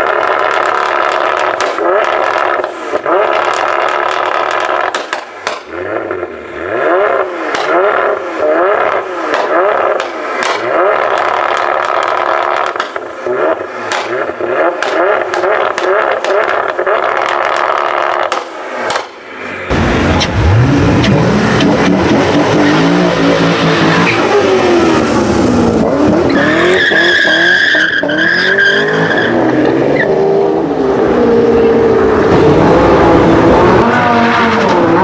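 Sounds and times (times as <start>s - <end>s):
exhaust crackling and popping: 0.0s - 29.7s
car engine revving: 0.0s - 35.0s
car pulling away with wheelspin: 19.7s - 35.0s
tyres squealing: 26.2s - 30.1s.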